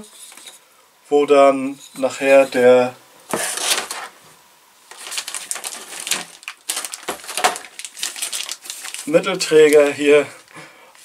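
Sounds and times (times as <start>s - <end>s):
plastic wrap crinkling: 3.3s - 4.2s, 4.8s - 11.0s.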